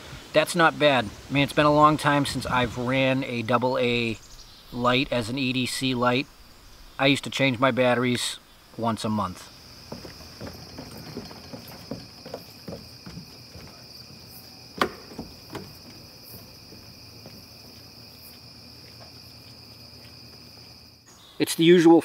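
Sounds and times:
crickets chirring: 0:00.0 - 0:22.0
light taps and knocks: 0:09.9 - 0:17.8.

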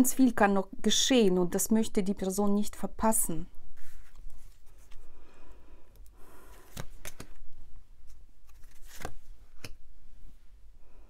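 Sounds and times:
cards rustling: 0:03.8 - 0:05.2, 0:06.3 - 0:09.8
card clicks and snaps: 0:06.0 - 0:07.4, 0:08.4 - 0:09.8.

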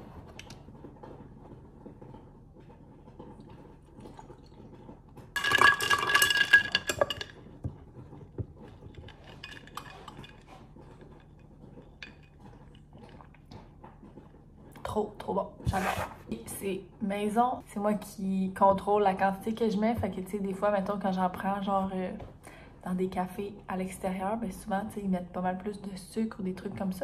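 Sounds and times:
ice cubes clinking in glass: 0:05.4 - 0:07.4.

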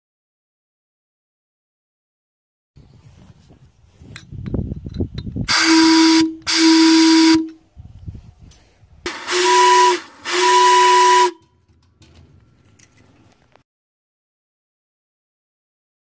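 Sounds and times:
steam whistle blasts: 0:05.5 - 0:07.6, 0:09.1 - 0:11.5.

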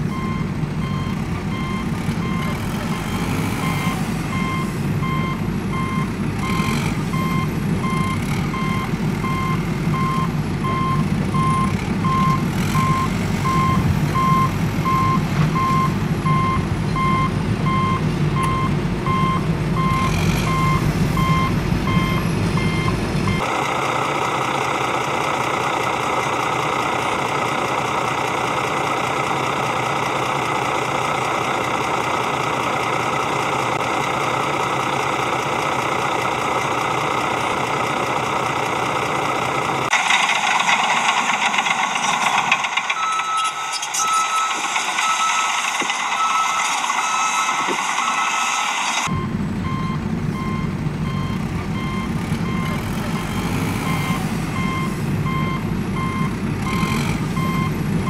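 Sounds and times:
truck engine running: 0:00.0 - 0:58.0
reversing alarm beeps: 0:00.1 - 0:23.5, 0:42.8 - 0:57.8.

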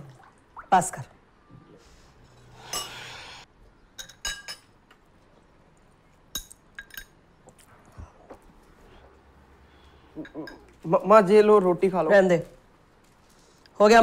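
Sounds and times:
spoons clinking against bowls: 0:02.3 - 0:03.1, 0:06.4 - 0:07.2.

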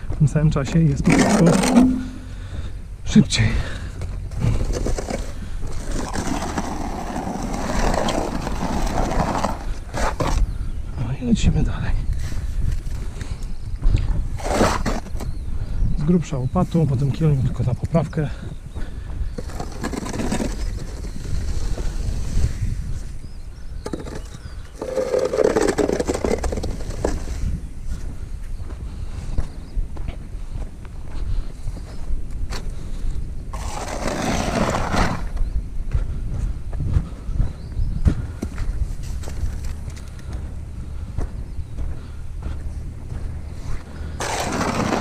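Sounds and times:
steady low rumble: 0:00.0 - 0:14.5, 0:35.2 - 0:45.0
low rumble: 0:00.7 - 0:09.6
shovel scraping wet mortar: 0:01.0 - 0:02.3, 0:04.7 - 0:10.4, 0:14.4 - 0:15.2, 0:19.4 - 0:21.7, 0:23.9 - 0:27.4, 0:33.6 - 0:35.2, 0:44.2 - 0:45.0.

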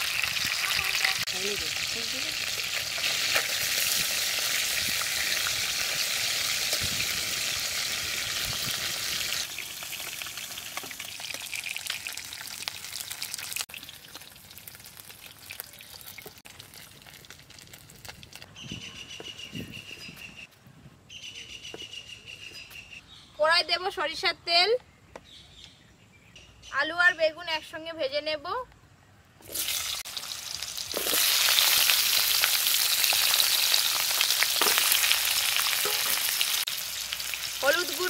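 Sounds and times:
fish frying in oil: 0:00.0 - 0:18.4, 0:29.5 - 0:38.0.

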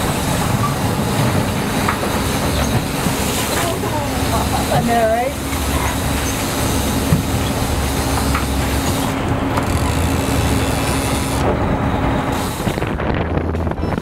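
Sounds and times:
water rushing: 0:00.0 - 0:13.5
boat engine humming: 0:00.0 - 0:14.0
wind rushing: 0:11.4 - 0:14.0.

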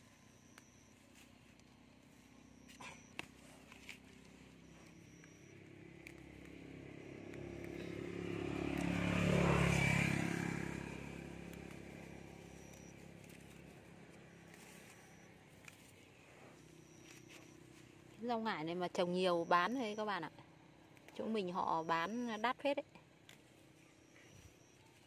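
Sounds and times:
vehicle engine passing by: 0:04.3 - 0:15.4.

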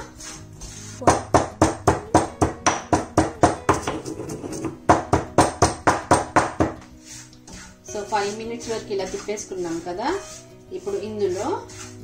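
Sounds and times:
pestle pounding in stone mortar: 0:00.6 - 0:06.9.

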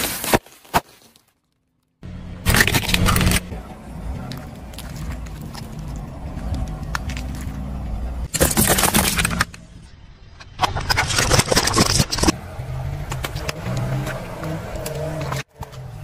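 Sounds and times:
tyre crushing plastic bottles: 0:00.0 - 0:01.6, 0:02.4 - 0:03.5, 0:08.3 - 0:09.6
car engine running low: 0:02.0 - 0:10.1.

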